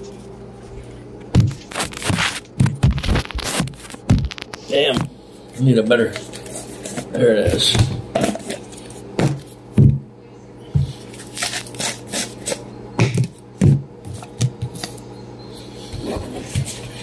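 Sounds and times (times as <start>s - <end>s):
jars rubbing and scraping: 15.6s - 17.0s.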